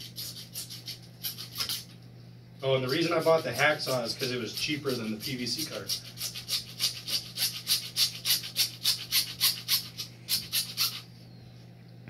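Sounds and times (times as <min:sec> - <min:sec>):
hacksaw cutting plastic pipe: 0:00.0 - 0:01.9, 0:03.0 - 0:11.0.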